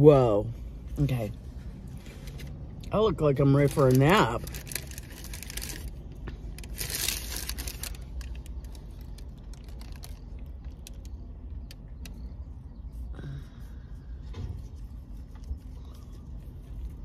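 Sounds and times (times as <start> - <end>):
paper wrapper crinkling and tearing: 3.6 - 11.2
faint clicks and rustles: 3.6 - 13.1.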